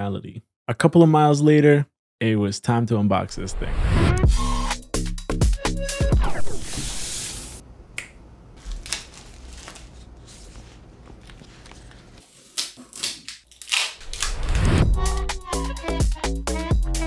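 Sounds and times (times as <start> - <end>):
plastic wrap crinkling: 8.6 - 14.5
packing tape peeling: 8.6 - 14.6.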